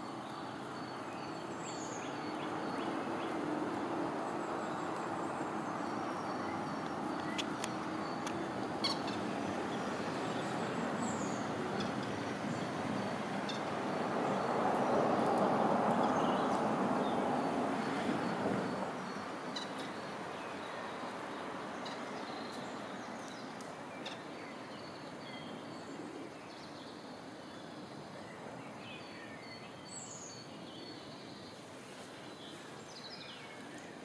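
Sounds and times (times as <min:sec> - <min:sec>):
small birds chirping: 0:00.0 - 0:13.7.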